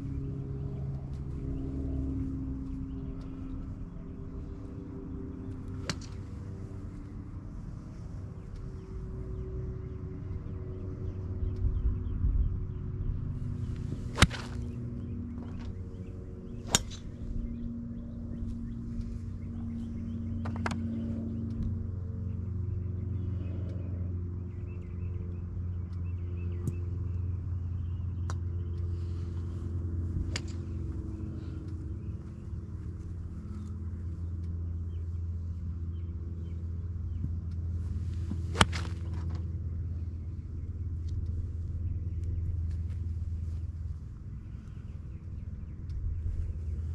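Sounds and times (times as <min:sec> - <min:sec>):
low engine hum: 0:00.0 - 0:46.9
steady low rumble: 0:00.0 - 0:46.9
golf club swish: 0:13.7 - 0:14.8, 0:37.9 - 0:39.3
golf ball sharp crack: 0:13.7 - 0:15.0, 0:16.6 - 0:17.2, 0:38.3 - 0:39.4.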